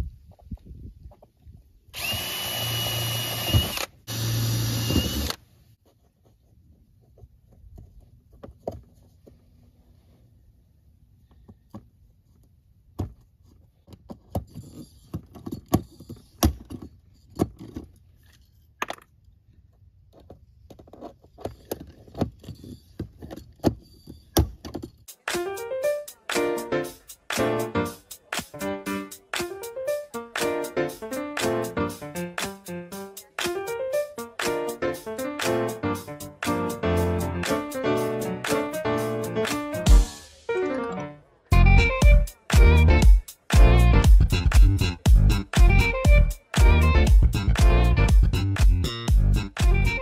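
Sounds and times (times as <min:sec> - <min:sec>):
cordless drill into wood: 0:02.0 - 0:05.4
tool handling clicks and knocks: 0:12.9 - 0:25.1
music: 0:25.1 - 0:50.0.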